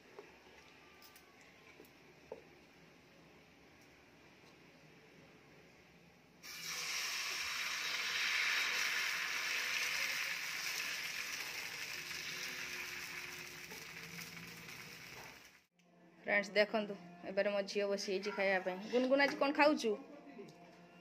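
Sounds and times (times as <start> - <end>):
batter sizzling on griddle: 6.4 - 15.7.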